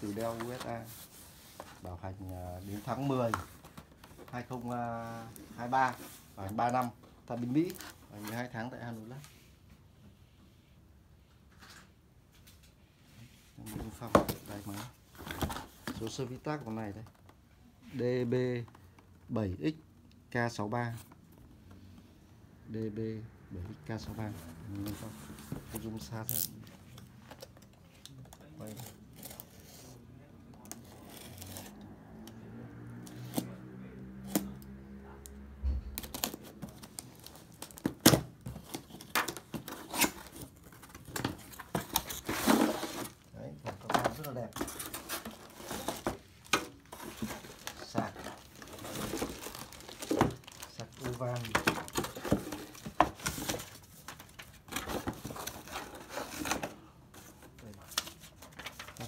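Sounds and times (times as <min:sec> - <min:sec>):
cardboard scraping and rustling: 0:00.0 - 0:08.6, 0:13.6 - 0:16.9, 0:36.0 - 0:59.0.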